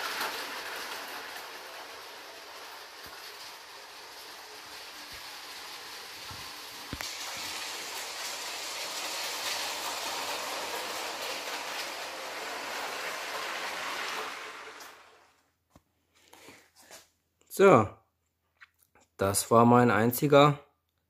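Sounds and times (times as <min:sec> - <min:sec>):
toy train rolling rattle: 0:00.0 - 0:15.4.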